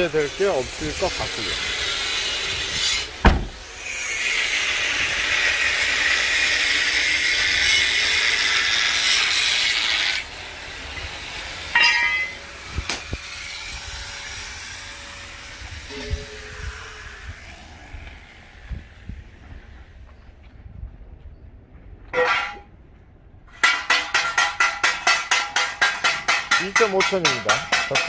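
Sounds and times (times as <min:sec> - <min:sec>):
loud steady hiss: 0:00.0 - 0:19.1
knocks: 0:03.2 - 0:03.6
metallic clank: 0:03.2 - 0:03.6, 0:11.8 - 0:12.4, 0:22.1 - 0:22.7
solid thump: 0:03.2 - 0:03.6.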